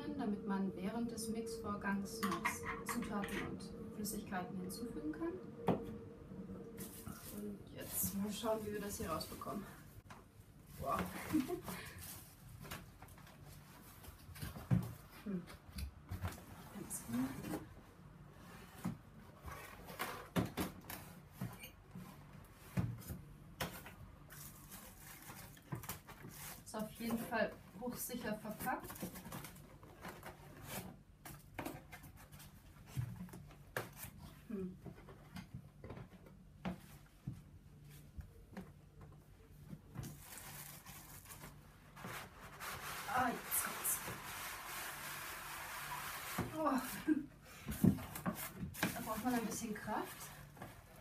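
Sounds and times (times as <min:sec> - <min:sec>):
packaging rustling: 0:24.3 - 0:27.0, 0:40.0 - 0:45.0.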